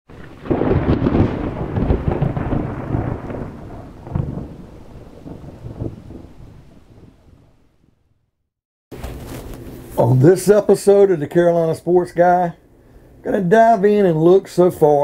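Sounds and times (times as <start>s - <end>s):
thunder clap: 0.1s - 8.1s
thunder rumbling: 0.1s - 8.1s.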